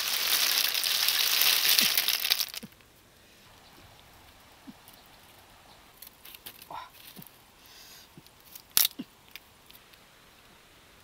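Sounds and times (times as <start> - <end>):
snail shells rattling on bamboo: 0.0 - 2.8.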